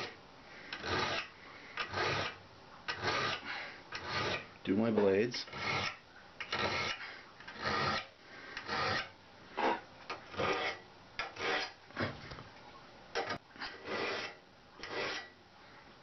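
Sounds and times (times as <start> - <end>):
hand file rasping on saw teeth: 0.0 - 4.5, 5.4 - 11.8, 13.6 - 15.4.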